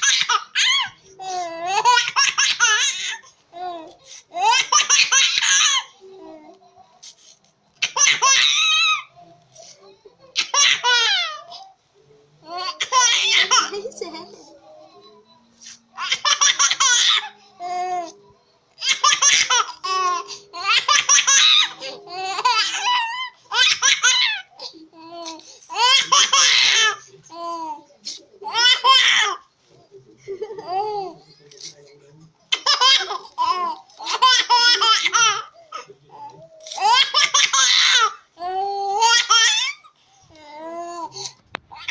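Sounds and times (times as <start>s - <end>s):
baby laughing: 0.0s - 6.5s, 7.8s - 9.1s, 12.4s - 15.2s, 16.0s - 18.1s, 18.8s - 29.4s, 30.4s - 31.2s, 32.5s - 41.9s.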